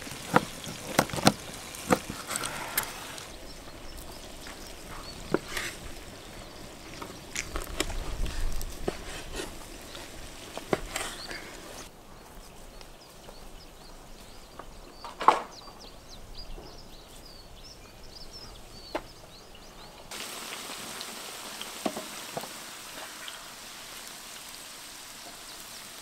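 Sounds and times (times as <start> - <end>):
vegetables sizzling in hot oil: 0.0 - 11.9, 20.1 - 26.0
small birds chirping: 0.0 - 20.6.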